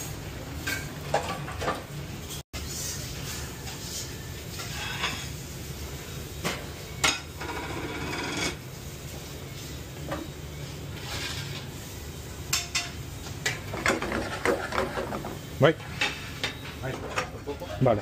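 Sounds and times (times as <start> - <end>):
metal pans clanking and scraping: 0.6 - 1.9, 3.2 - 5.4, 6.4 - 8.6, 11.0 - 11.7, 12.5 - 18.0.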